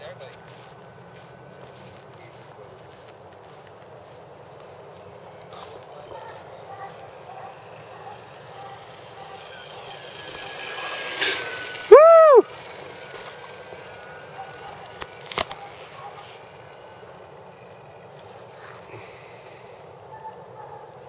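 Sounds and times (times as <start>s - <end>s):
model plane motor and propeller: 5.2s - 19.9s
person whooping: 11.8s - 12.6s.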